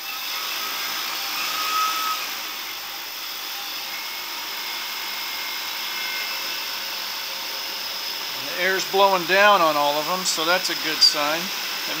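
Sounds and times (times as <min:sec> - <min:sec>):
brief motor whine: 0:01.3 - 0:02.8.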